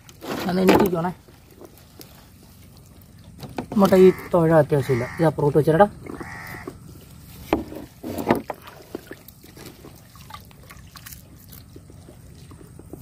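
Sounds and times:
water dripping and sloshing: 0:00.0 - 0:04.8, 0:05.4 - 0:13.0
wet net hauled over boat side: 0:00.0 - 0:13.0
splashes or knocks: 0:07.4 - 0:11.7.

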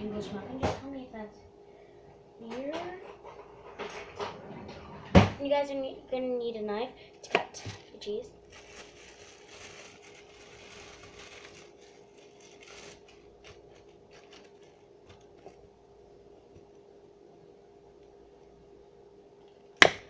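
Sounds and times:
wrapper crinkling: 0:08.4 - 0:15.7.

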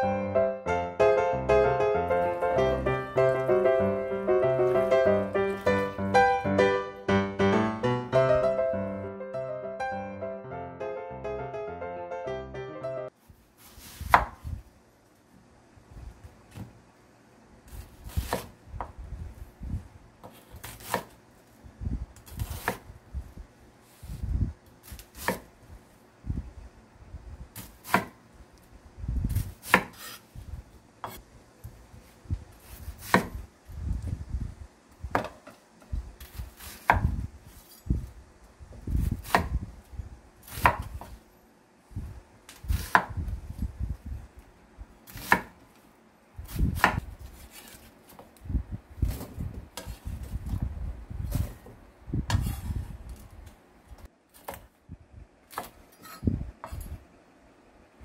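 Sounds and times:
knife chopping on wooden board: 0:14.0 - 0:14.4, 0:18.1 - 0:18.9, 0:20.2 - 0:21.1, 0:22.4 - 0:22.8, 0:24.9 - 0:25.5, 0:27.6 - 0:28.2, 0:29.6 - 0:30.2, 0:33.0 - 0:33.4, 0:35.1 - 0:35.4, 0:36.3 - 0:37.1, 0:39.2 - 0:39.5, 0:40.5 - 0:41.2, 0:42.8 - 0:43.2, 0:45.1 - 0:45.6, 0:46.5 - 0:47.8.

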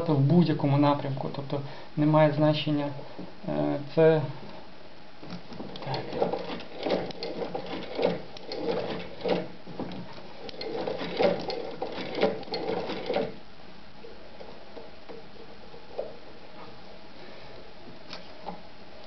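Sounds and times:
sewing machine knocking: 0:05.6 - 0:13.4.

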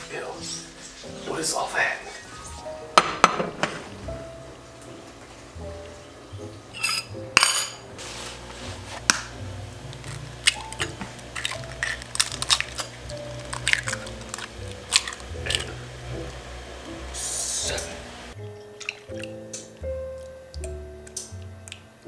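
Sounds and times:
dishes and utensils clinking: 0:06.7 - 0:08.0.

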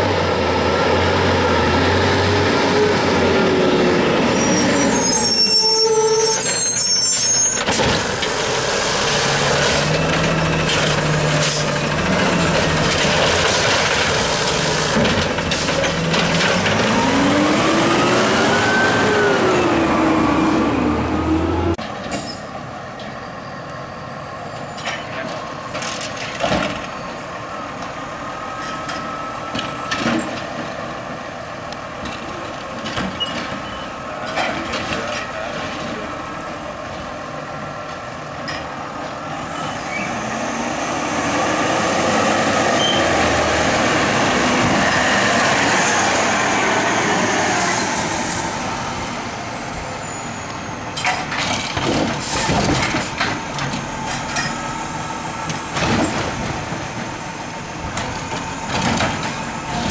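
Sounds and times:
garbage truck passing: 0:00.0 - 0:59.9
cart knocking and banging: 0:09.7 - 0:17.2, 0:51.0 - 0:54.6, 0:55.7 - 0:57.1, 0:57.9 - 0:59.9.

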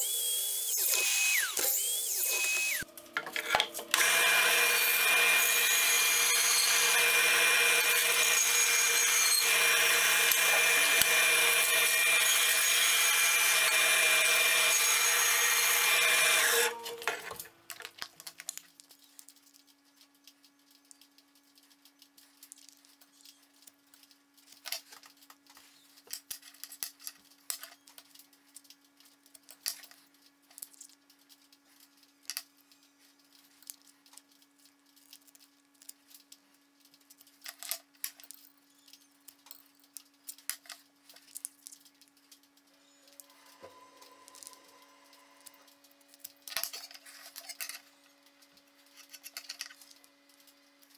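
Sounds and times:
bandsaw cutting: 0:00.0 - 0:17.4.

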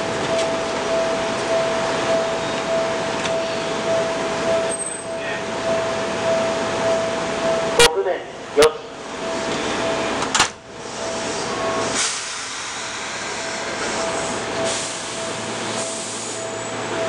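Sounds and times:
electric train starting off: 0:00.0 - 0:07.8, 0:08.4 - 0:17.0.

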